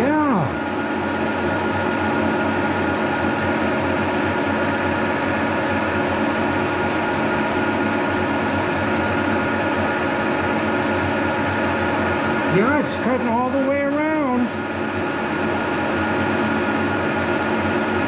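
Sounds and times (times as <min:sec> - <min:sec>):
milling machine droning: 0:00.0 - 0:18.0.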